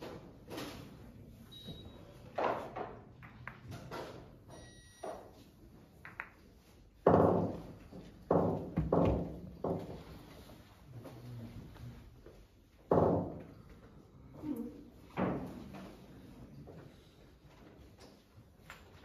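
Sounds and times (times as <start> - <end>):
billiard balls knocking together: 2.4 - 4.4, 5.9 - 10.0.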